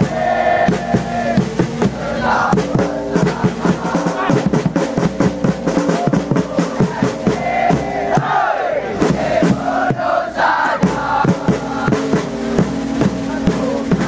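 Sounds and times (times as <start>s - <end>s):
crowd chanting in unison: 0.0s - 4.8s, 5.8s - 12.3s
bass drum beat: 0.0s - 14.0s.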